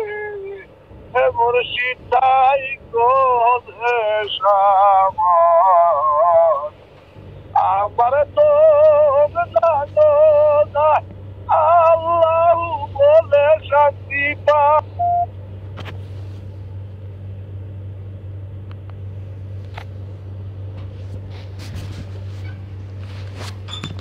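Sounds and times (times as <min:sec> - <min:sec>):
person singing wavering phrases: 0:00.0 - 0:06.7, 0:07.6 - 0:15.1
steady low hum: 0:00.0 - 0:24.0.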